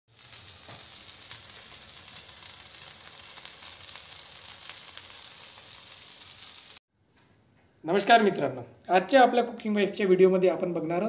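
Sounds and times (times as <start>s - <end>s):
fish sizzling in oil: 0.1s - 6.8s.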